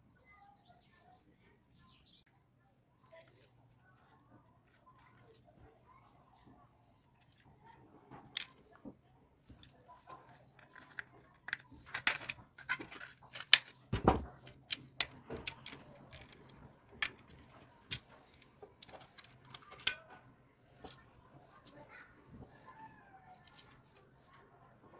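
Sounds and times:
plastic case clicking and snapping: 14.4s - 18.1s.

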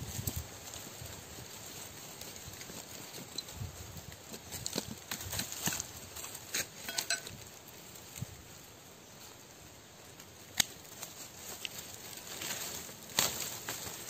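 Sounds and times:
rustling of soil and dry leaves: 0.0s - 14.0s
pruning shears snipping: 10.5s - 11.0s.

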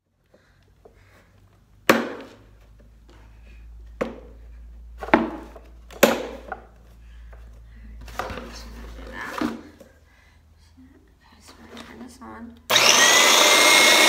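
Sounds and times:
plastic knocks and clunks: 5.0s - 6.7s.

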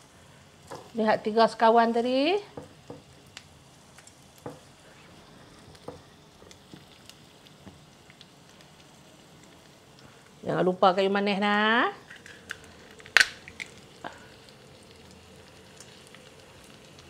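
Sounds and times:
shallots and garlic sizzling in oil: 0.0s - 17.0s
oil popping and crackling: 2.6s - 10.4s, 11.9s - 17.0s.

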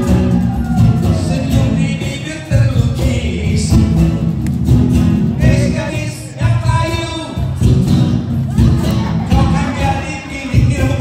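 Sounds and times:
person singing: 0.0s - 4.0s, 8.5s - 11.0s
live rock band playing: 0.0s - 11.0s.

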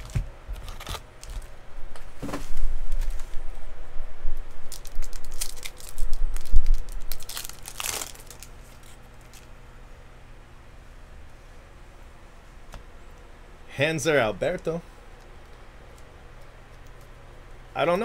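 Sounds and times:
foil wrapper crinkling and tearing: 0.0s - 1.5s, 4.6s - 9.5s.

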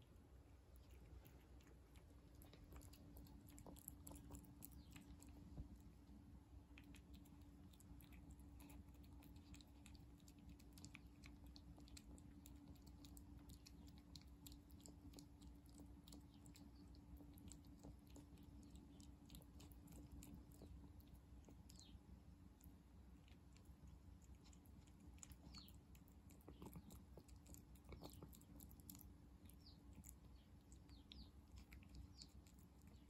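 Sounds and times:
cat chewing wet food: 0.0s - 33.0s.

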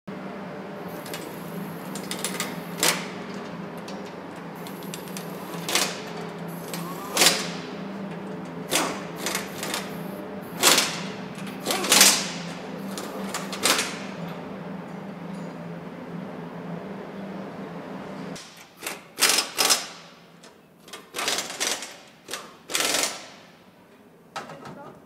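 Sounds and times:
steady low hum: 0.1s - 18.4s.

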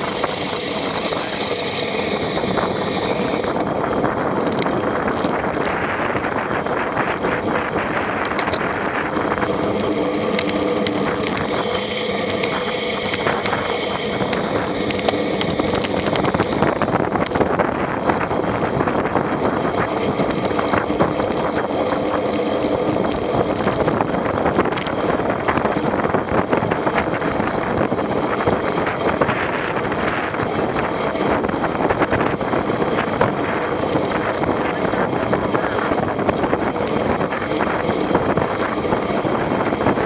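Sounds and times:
vehicle engine running: 0.0s - 27.0s
wind noise on microphone: 0.0s - 40.0s.

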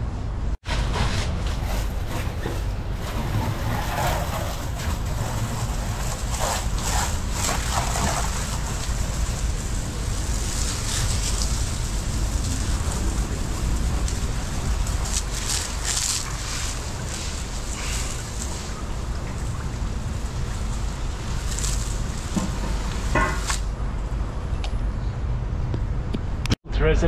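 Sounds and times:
hose spray hissing and splashing: 4.0s - 23.7s
low rumble: 7.2s - 27.0s.

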